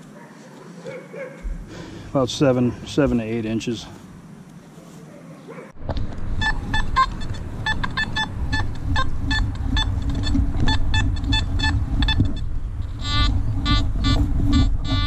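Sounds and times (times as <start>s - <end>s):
steady low rumble: 5.8s - 15.0s
metal detector beeps: 6.4s - 15.0s.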